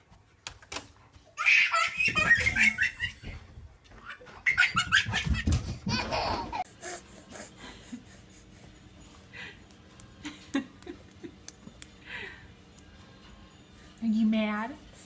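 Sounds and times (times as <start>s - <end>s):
toddler squealing laughter: 1.4s - 3.4s.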